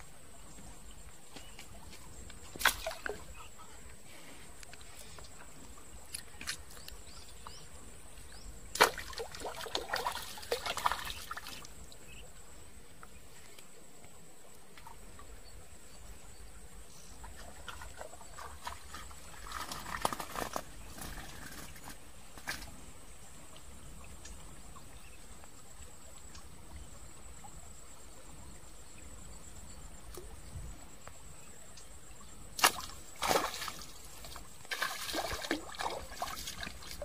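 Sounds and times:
splashing in shallow water: 0:01.4 - 0:03.6, 0:08.7 - 0:12.2, 0:17.2 - 0:22.8, 0:32.5 - 0:37.0.

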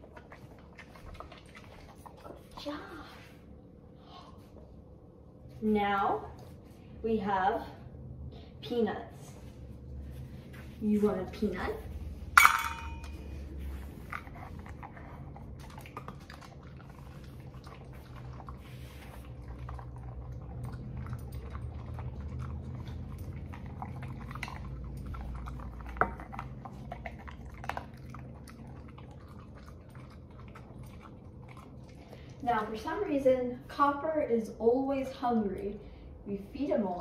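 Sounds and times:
dog chewing: 0:00.0 - 0:02.6, 0:12.4 - 0:32.8.

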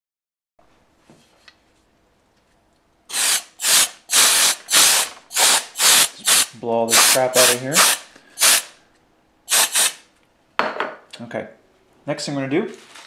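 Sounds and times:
compressed air hissing: 0:03.1 - 0:08.8, 0:09.5 - 0:10.0.

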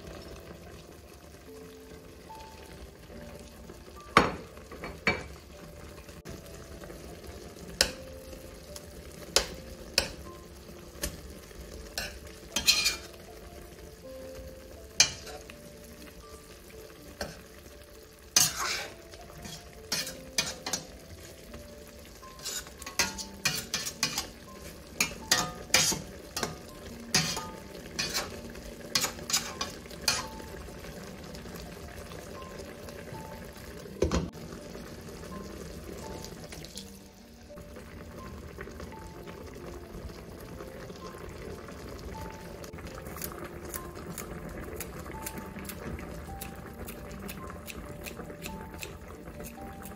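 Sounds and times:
liquid simmering and sizzling: 0:00.0 - 0:49.9
metal spoon clinking on pot: 0:12.0 - 0:13.1, 0:18.4 - 0:20.9, 0:22.4 - 0:24.3, 0:25.0 - 0:28.3.

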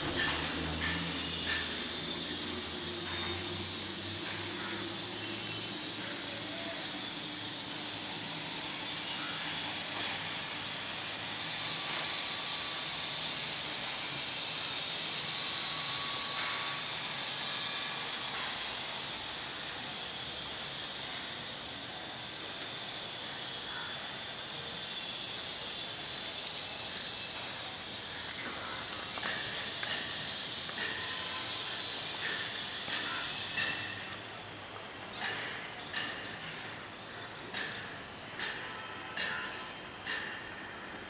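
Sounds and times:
faint high-pitched ringing: 0:14.8 - 0:41.0.

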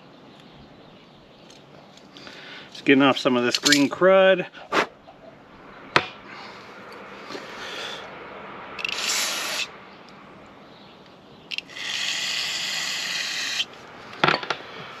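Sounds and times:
aerosol spray hissing: 0:08.8 - 0:09.7.

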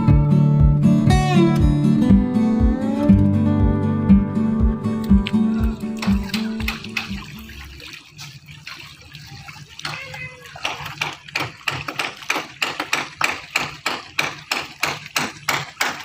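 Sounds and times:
shallow water splashing: 0:05.0 - 0:16.0.

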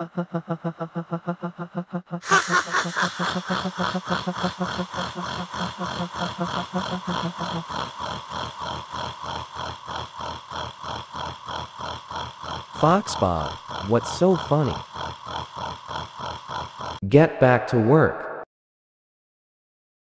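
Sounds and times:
cartoon voices laughing: 0:00.0 - 0:10.0, 0:10.8 - 0:17.0
brighter cartoon laugh: 0:02.2 - 0:10.0.

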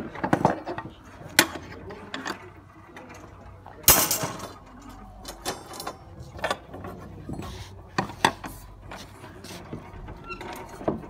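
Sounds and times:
metal clatter: 0:03.8 - 0:07.4.

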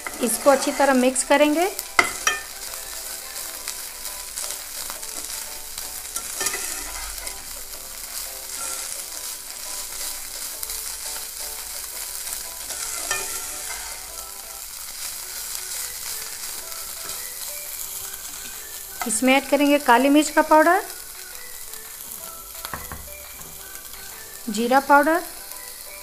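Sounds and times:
spatula scraping pan: 0:00.0 - 0:20.6
food sizzling in oil: 0:00.0 - 0:26.0.

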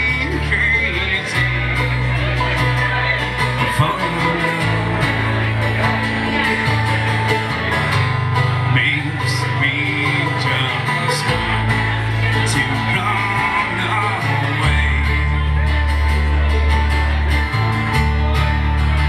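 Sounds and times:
acoustic bass guitar: 0:00.0 - 0:19.0
picked banjo: 0:00.0 - 0:19.0
strummed acoustic guitar: 0:00.0 - 0:19.0.

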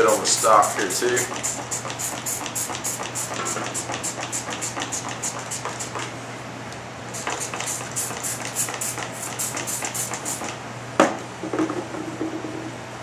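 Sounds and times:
spray bottle squirting: 0:00.1 - 0:06.1, 0:07.1 - 0:10.6.

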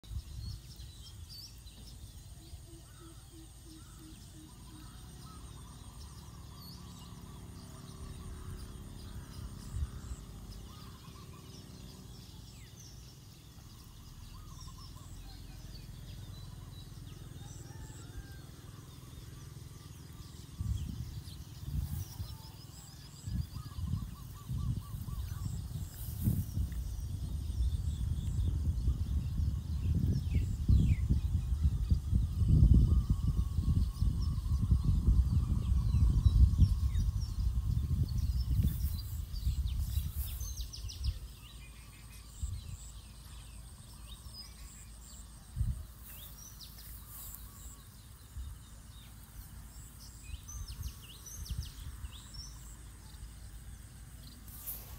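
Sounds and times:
birds chirping: 0:00.0 - 0:54.9
low steady rumble: 0:00.1 - 0:54.9.

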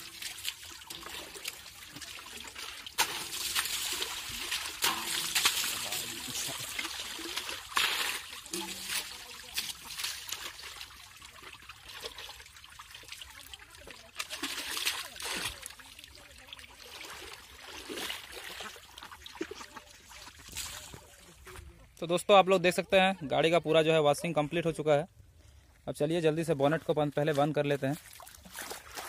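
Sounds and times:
water splashing: 0:00.0 - 0:21.7, 0:27.3 - 0:29.0
water dribbling: 0:00.0 - 0:22.0, 0:27.0 - 0:29.0.

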